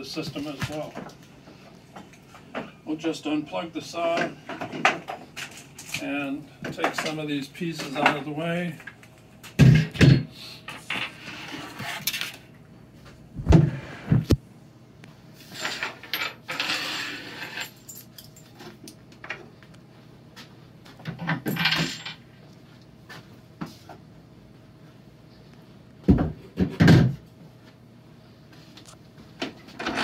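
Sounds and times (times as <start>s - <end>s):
boards sliding and scraping: 10.8s - 12.4s, 15.4s - 17.7s.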